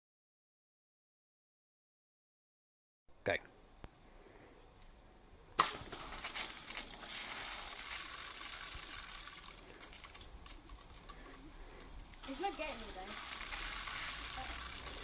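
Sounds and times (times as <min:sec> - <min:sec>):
water spraying hiss: 0:05.6 - 0:11.1, 0:11.9 - 0:15.0.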